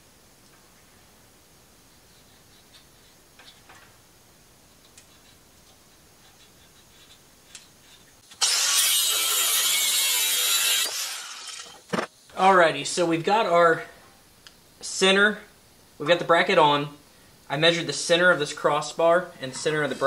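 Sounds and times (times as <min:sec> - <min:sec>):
grinder cutting metal: 0:06.9 - 0:11.9.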